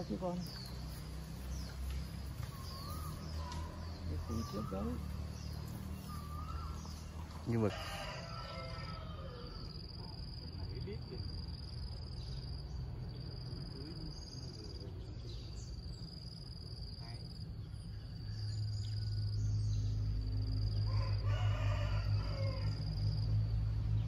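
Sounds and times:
insects buzzing: 0.0s - 24.0s
rooster crowing: 2.6s - 10.0s, 20.7s - 23.4s.

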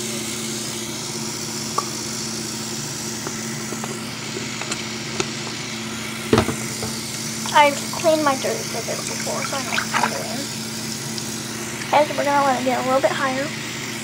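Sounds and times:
faucet water running into basin: 3.2s - 14.0s.

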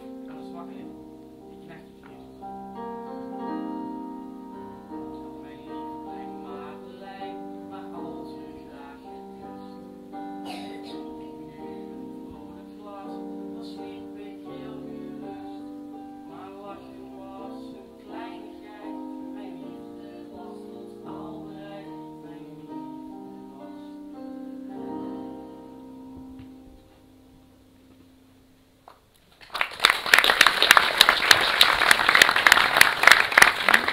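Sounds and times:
song with piano: 0.0s - 33.9s
audience applause: 29.3s - 33.9s.

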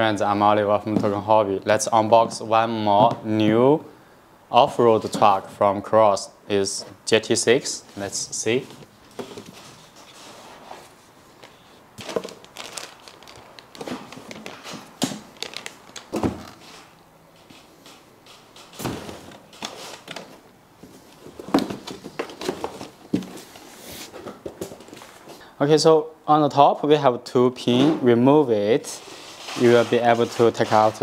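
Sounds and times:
cardboard and paper rustling: 8.0s - 16.9s, 18.7s - 25.4s.

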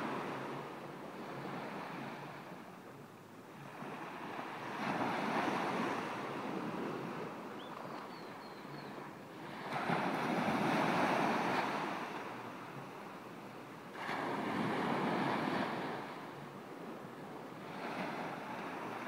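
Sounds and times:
small waves breaking on beach: 3.5s - 8.0s, 9.0s - 16.9s, 17.5s - 19.0s.

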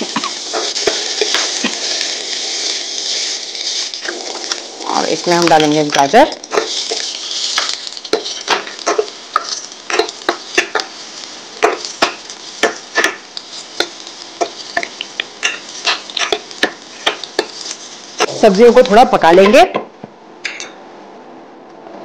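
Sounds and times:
spoon scraping a metal pan: 6.4s - 10.9s, 13.8s - 17.8s.

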